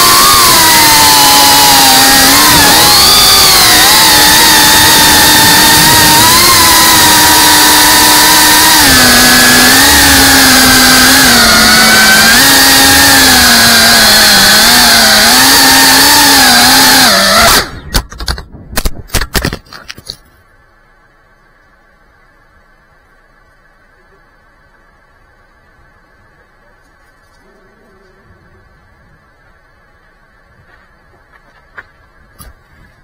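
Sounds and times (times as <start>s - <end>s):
drone motors buzzing whine: 0.0s - 18.1s.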